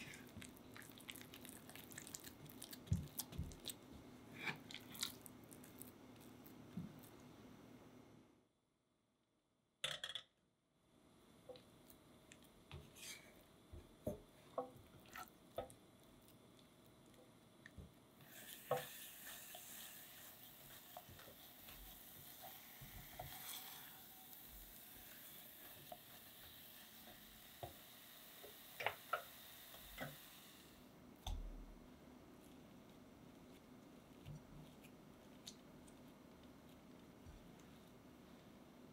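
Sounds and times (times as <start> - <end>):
spatula stirring dough in saucepan: 11.5 - 30.2
steady hiss: 18.2 - 30.9.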